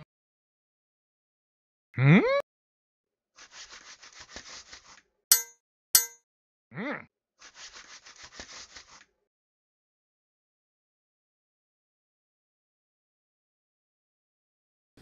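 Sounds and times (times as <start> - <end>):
ringing metal clangs: 5.3 - 6.2.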